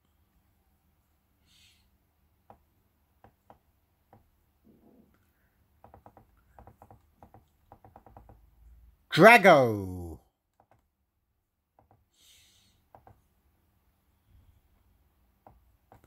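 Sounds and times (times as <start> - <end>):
computer mouse clicks: 12.9 - 13.2.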